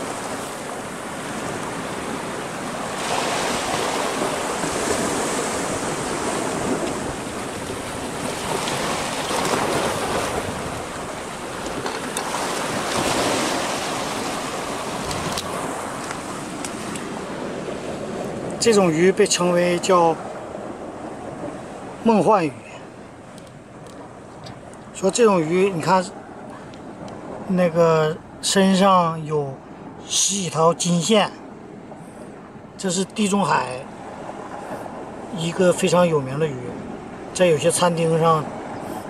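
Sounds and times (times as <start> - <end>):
sea waves breaking on rocks: 0.0 - 27.8.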